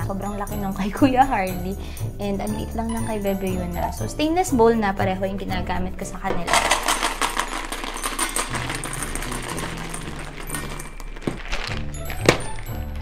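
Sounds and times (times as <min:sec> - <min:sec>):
background music: 0:00.0 - 0:13.0
dry kibble poured into metal bowl: 0:06.5 - 0:12.6.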